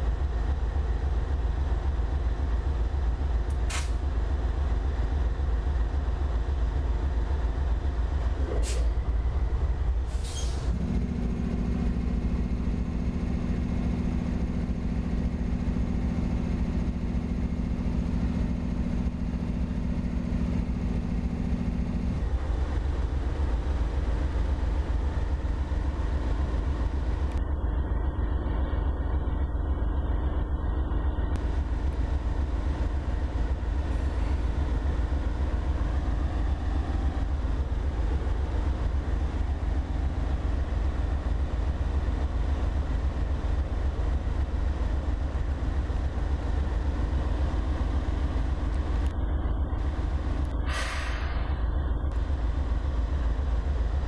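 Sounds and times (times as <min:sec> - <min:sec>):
locomotive engine rumble: 0:00.0 - 0:54.0
steady two-note hum: 0:10.7 - 0:50.8.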